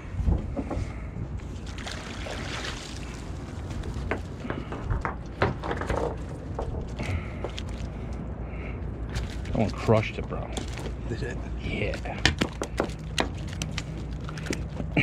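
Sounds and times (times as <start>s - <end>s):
steady low rumble: 0.0s - 15.0s
water splashing: 1.6s - 4.3s.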